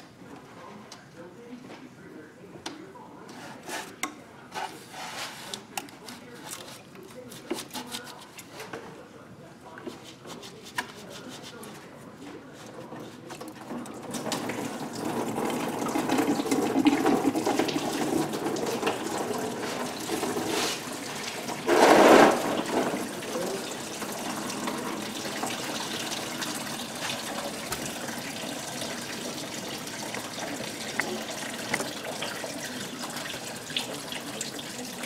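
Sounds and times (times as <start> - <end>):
liquid splashing into a pan: 14.1 - 35.0.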